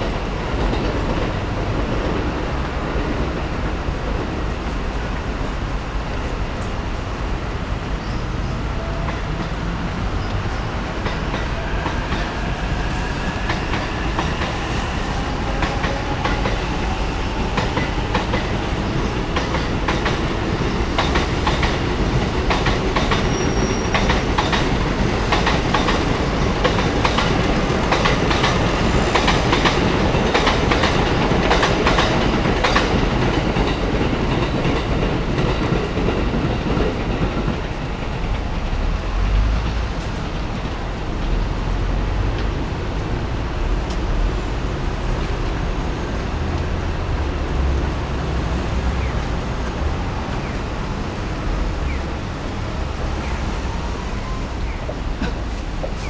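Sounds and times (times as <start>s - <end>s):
train rumbling past: 0.0s - 56.0s
wheels clacking over rail joints: 11.0s - 42.6s.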